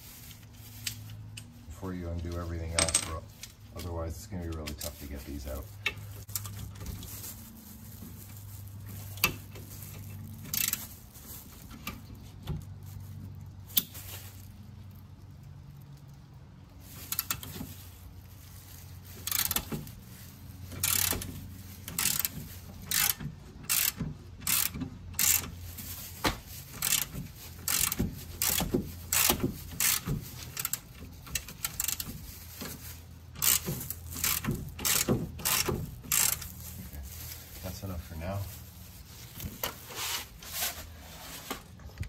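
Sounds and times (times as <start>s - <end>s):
ratchet wrench clicking: 10.5s - 10.8s, 17.1s - 17.5s, 19.2s - 19.7s, 20.8s - 21.3s, 21.9s - 22.3s, 22.9s - 25.5s, 26.8s - 32.0s, 33.4s - 36.5s.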